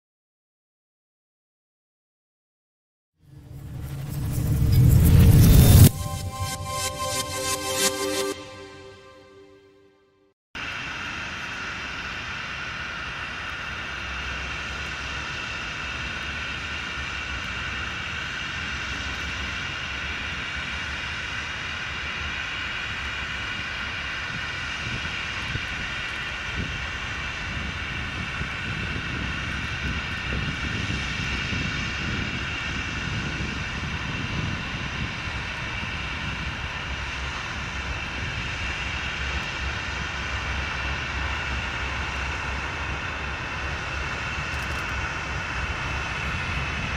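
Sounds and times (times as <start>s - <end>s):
diesel locomotive engine drone: 3.2s - 9.8s, 10.6s - 46.9s
high whine: 3.2s - 10.0s
low rumble: 3.3s - 9.7s.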